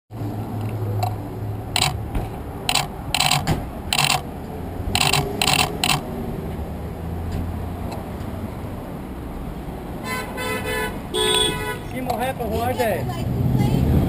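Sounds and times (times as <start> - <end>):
traffic engine hum: 0.2 - 14.0
camera shutters clicking: 1.8 - 2.0, 2.7 - 4.2, 5.0 - 6.0.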